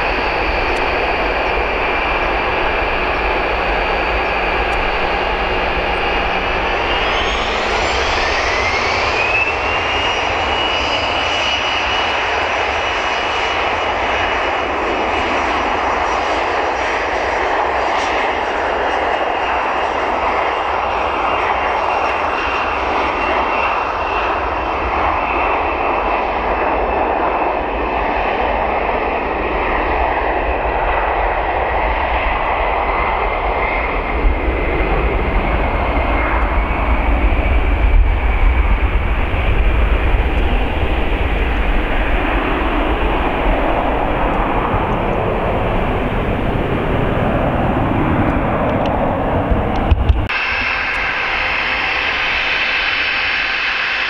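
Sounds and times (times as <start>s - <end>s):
low rumble: 0.0s - 9.0s
jet engines at taxi power: 0.0s - 54.0s.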